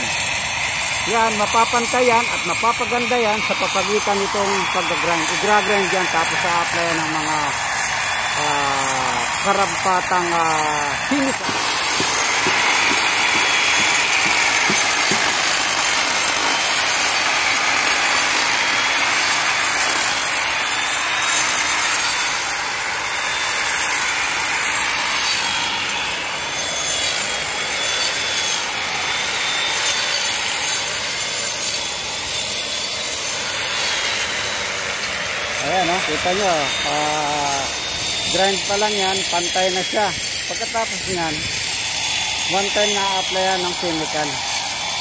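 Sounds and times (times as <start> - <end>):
grinder grinding concrete: 0.0 - 45.0.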